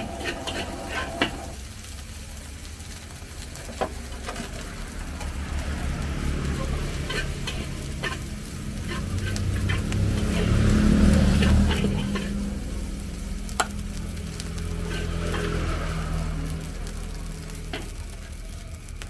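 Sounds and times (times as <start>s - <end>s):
metal spatula scraping a wok: 0.0s - 1.6s, 6.4s - 12.7s, 14.2s - 16.3s, 17.6s - 18.5s
fried rice sizzling: 0.0s - 19.0s
low steady rumble: 0.0s - 19.0s.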